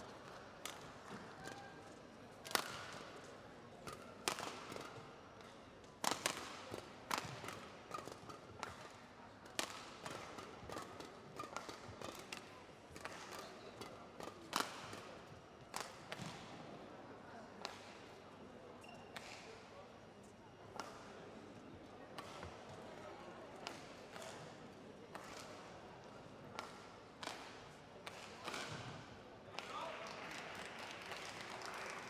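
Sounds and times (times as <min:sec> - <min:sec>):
racket striking shuttlecock: 0:06.0 - 0:12.4.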